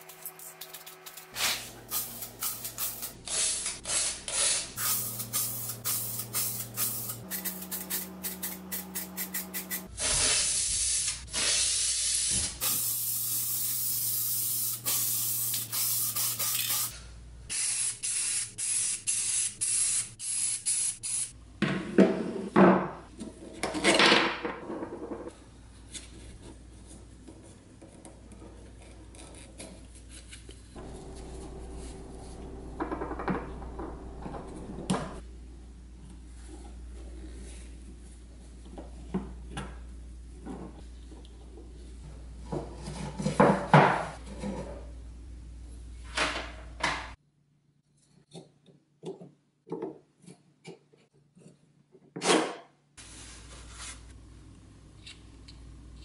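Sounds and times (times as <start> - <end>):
paint spray hissing: 1.3 - 16.9.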